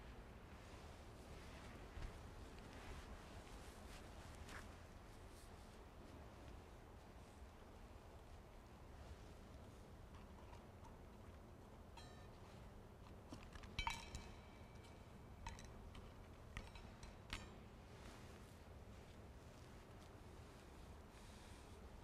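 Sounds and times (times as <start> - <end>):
metal vessels clinking: 13.7 - 17.6.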